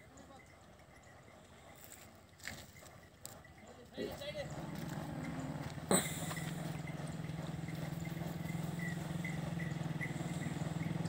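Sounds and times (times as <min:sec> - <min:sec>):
motorcycle engine running: 0:04.0 - 0:11.0.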